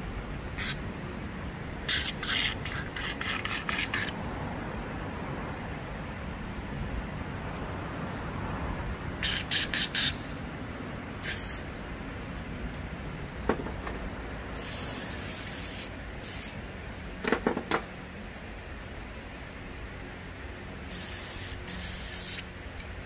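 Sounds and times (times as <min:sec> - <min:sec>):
hissing spray bursts: 0:11.2 - 0:11.7, 0:14.6 - 0:16.6, 0:20.9 - 0:22.5.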